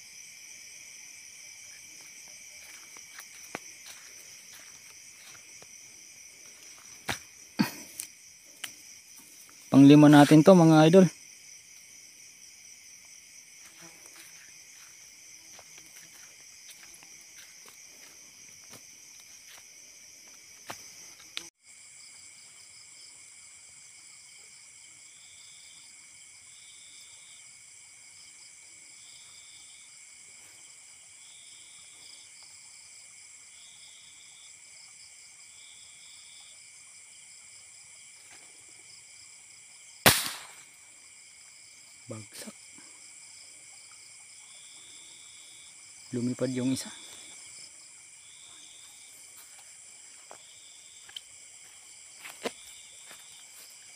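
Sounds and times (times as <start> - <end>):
night insects chirping: 0.0 - 53.9
airgun shot: 40.0 - 40.7.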